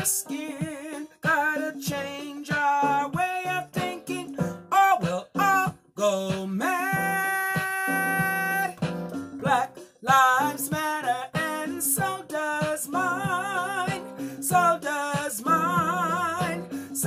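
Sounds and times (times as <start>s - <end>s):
woman singing with vibrato: 9.4s - 16.8s.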